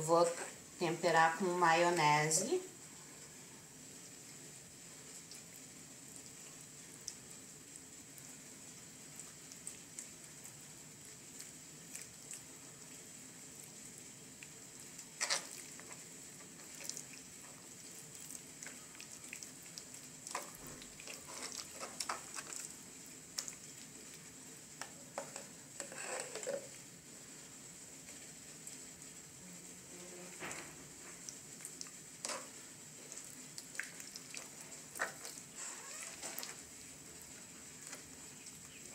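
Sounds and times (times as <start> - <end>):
wet squishing of hands on chicken: 9.1 - 25.0, 30.6 - 38.9.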